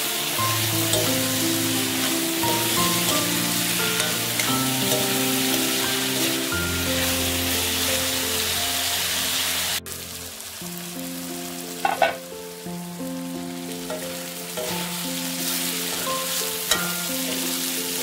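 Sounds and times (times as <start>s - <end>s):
background music: 0.0s - 18.0s
potatoes sizzling in a wok: 0.0s - 18.0s
metal spatula knocking on pan: 11.8s - 12.2s.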